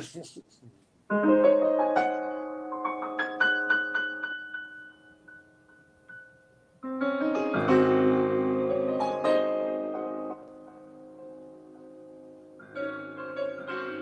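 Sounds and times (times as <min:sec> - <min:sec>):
slow solo piano: 0:01.1 - 0:14.0.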